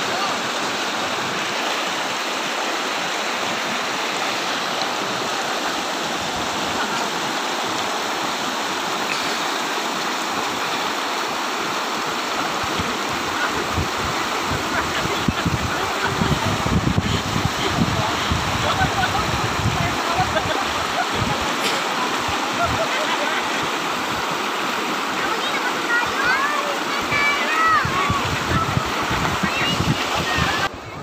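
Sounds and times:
river rapids rushing over rocks: 0.0s - 31.0s.

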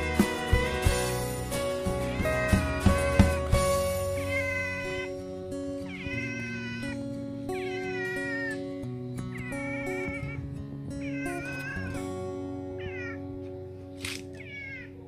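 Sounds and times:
cat meowing: 4.0s - 8.7s, 9.3s - 13.4s, 14.3s - 15.0s.

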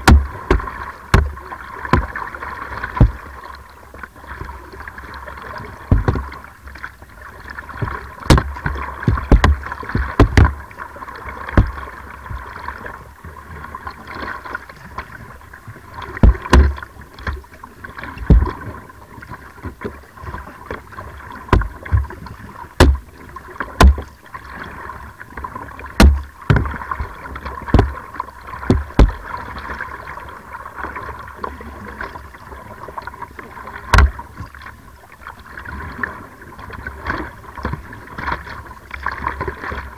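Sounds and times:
paddle stroke thumps: 0.0s - 2.2s, 2.9s - 3.3s, 5.9s - 6.4s, 7.8s - 10.7s, 11.4s - 12.5s, 16.0s - 17.5s, 18.2s - 18.6s, 21.4s - 23.1s, 23.7s - 24.1s, 26.0s - 29.4s, 33.9s - 34.6s
water rushing along hull: 0.0s - 39.9s
water slapping boat: 0.0s - 39.9s.

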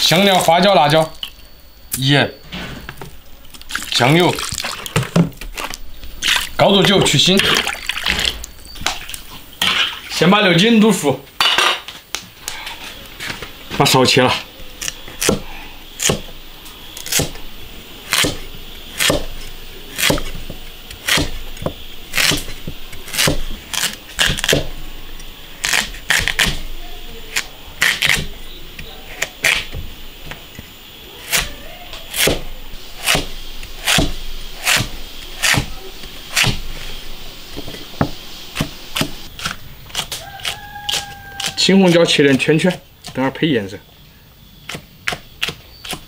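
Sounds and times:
cleaver chopping on wooden block: 16.0s - 16.3s, 17.0s - 17.4s, 18.1s - 18.4s, 19.0s - 19.3s, 20.0s - 23.4s, 24.2s - 24.7s, 32.1s - 32.4s, 33.0s - 35.7s.

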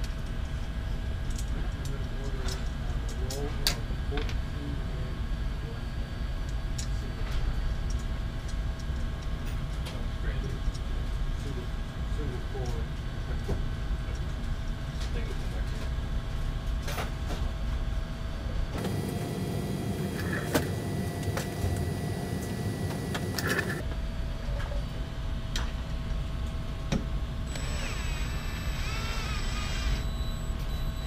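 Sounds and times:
cordless drill running: 27.5s - 30.2s.

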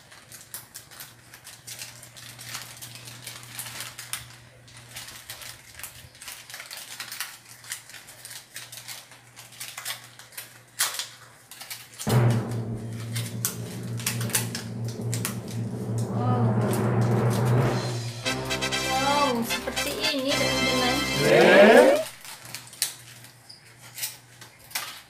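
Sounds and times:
foil crinkling and crackling: 0.0s - 12.1s, 22.1s - 25.0s
low hum: 12.1s - 19.6s.

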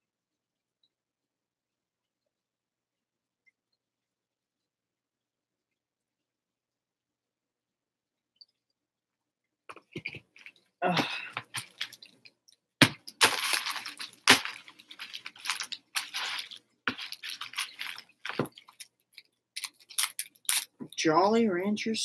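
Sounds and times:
candy wrappers crinkling: 9.8s - 21.0s.

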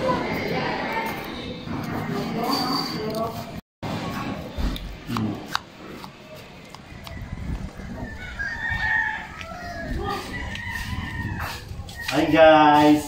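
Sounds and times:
rooster crowing: 7.2s - 12.0s.

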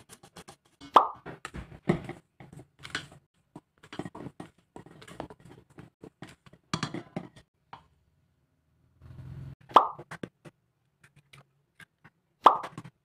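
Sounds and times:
spatula scraping metal bowl: 3.8s - 7.5s.

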